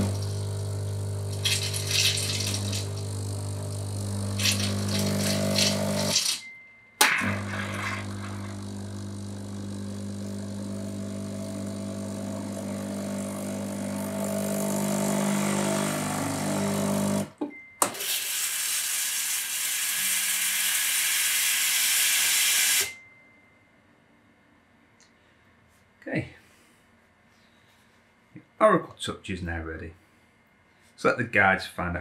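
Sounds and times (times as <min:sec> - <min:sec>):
espresso machine pump humming: 0:00.0 - 0:06.4, 0:07.1 - 0:17.3.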